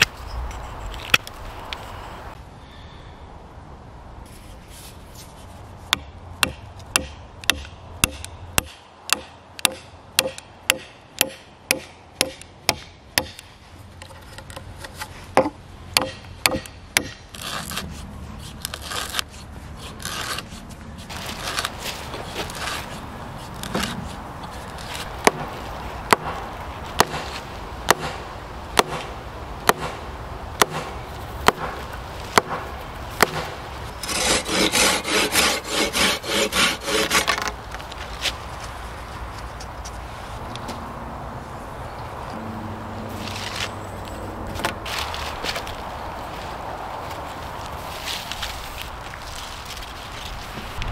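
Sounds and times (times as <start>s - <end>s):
sharp wooden knocks: 5.9s - 13.4s, 15.3s - 17.2s, 24.8s - 25.5s, 26.1s - 28.2s, 28.8s - 30.0s, 30.6s - 37.5s
pull saw rasping through wood: 17.3s - 20.6s, 34.0s - 37.5s
hand auger grinding through wood: 17.3s - 25.4s, 34.0s - 37.5s.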